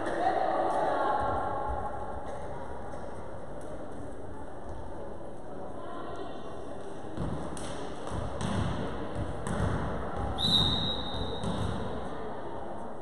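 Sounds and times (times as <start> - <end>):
volleyball thuds: 7.2 - 11.9
referee's whistle: 10.4 - 11.4.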